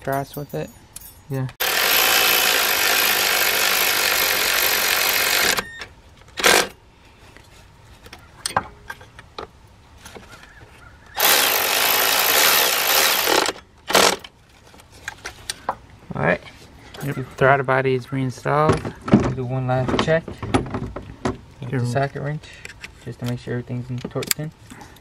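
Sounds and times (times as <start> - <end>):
power driver spinning: 1.6 - 5.6, 11.2 - 14.2.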